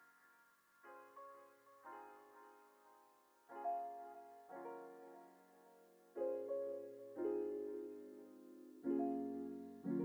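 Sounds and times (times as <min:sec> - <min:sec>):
piano chords: 0:06.2 - 0:10.0.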